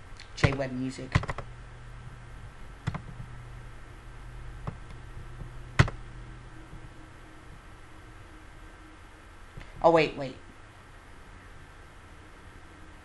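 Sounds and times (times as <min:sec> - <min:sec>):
faint steady low hum: 0:00.0 - 0:13.0
computer mouse clicks: 0:02.8 - 0:03.2.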